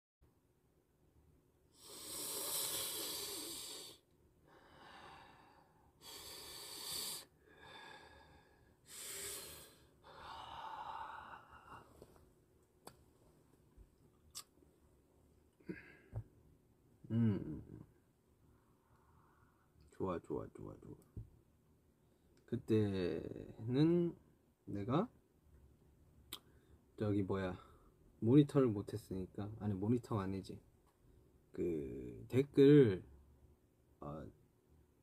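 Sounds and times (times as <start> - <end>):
man exhaling breathily: 1.8 - 11.9, 15.6 - 16.2.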